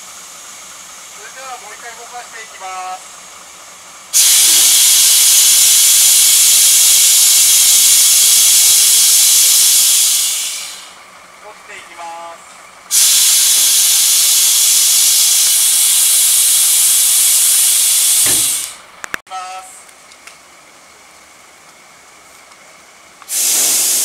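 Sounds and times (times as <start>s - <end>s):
compressed air hissing: 4.1s - 11.0s, 12.9s - 18.8s, 23.2s - 24.0s.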